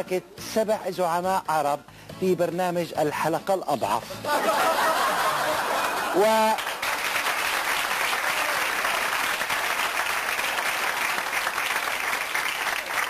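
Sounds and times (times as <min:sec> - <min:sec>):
studio audience applauding: 0:05.2 - 0:13.0.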